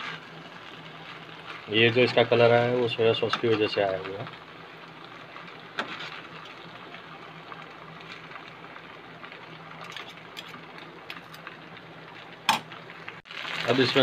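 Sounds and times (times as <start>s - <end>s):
steady hiss: 0.0s - 14.0s
spoons scraping wok: 5.4s - 6.7s, 9.8s - 11.5s.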